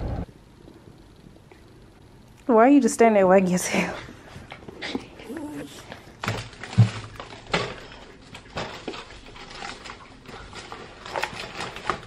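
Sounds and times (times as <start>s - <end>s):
paper bags rustling: 5.3s - 12.0s.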